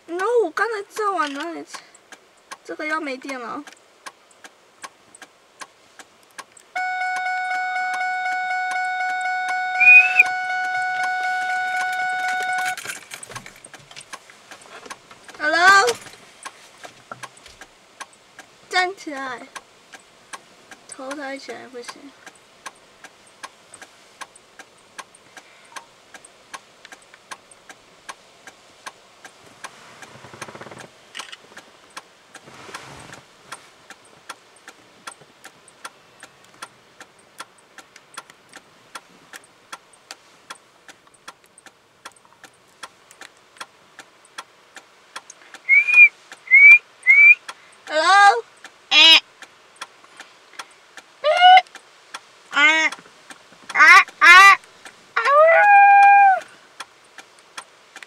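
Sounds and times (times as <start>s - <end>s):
steady faint ticking: 0.0s - 58.0s
short high whistles: 9.7s - 10.3s, 45.6s - 47.4s
person making wordless calls: 9.8s - 10.2s, 45.6s - 48.3s, 48.9s - 49.2s, 51.2s - 51.7s, 52.5s - 53.0s, 53.7s - 54.6s, 55.2s - 56.5s.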